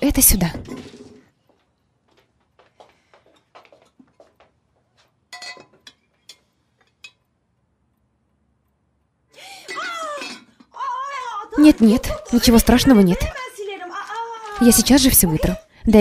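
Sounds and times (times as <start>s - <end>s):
dishes and cutlery clinking: 5.3s - 7.3s.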